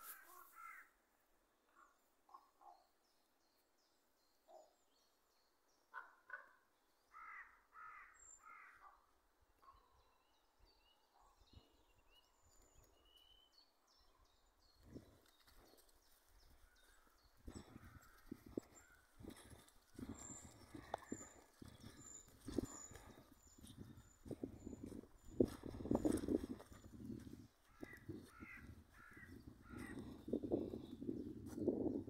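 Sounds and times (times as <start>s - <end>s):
distant crows cawing: 7.1s - 8.8s, 27.6s - 30.3s
small birds twittering: 9.6s - 32.0s.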